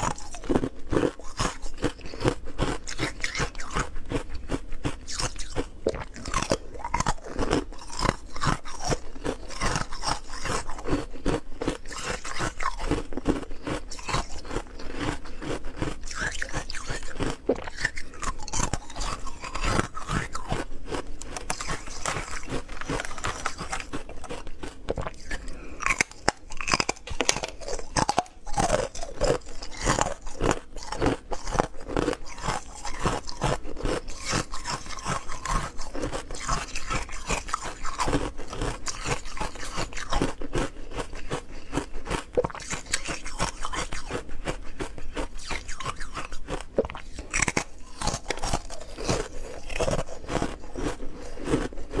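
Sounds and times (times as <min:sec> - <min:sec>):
ice being chewed crunching: 0:00.0 - 0:52.0.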